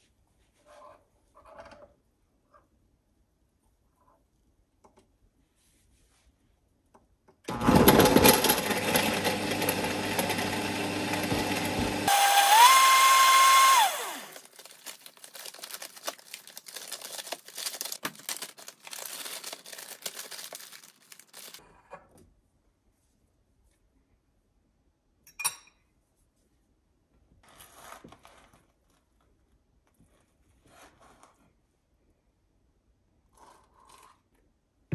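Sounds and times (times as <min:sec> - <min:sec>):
small electric motor whining: 0:09.6 - 0:14.5.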